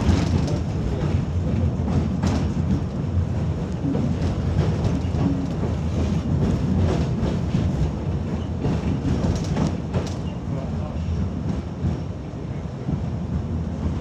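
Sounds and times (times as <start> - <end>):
tram wheels rumbling on rail: 0.0 - 14.0
faint clicks of rail joints: 3.6 - 12.1.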